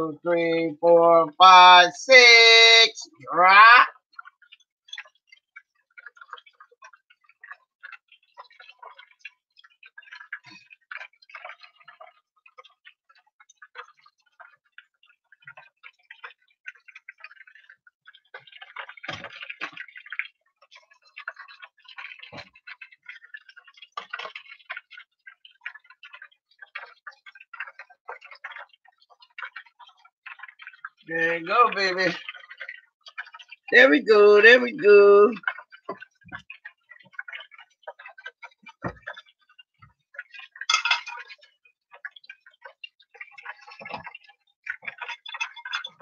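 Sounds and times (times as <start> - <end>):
fish deep-frying in oil: 0.0 - 46.0
metal tongs knocking pan: 40.7 - 41.2.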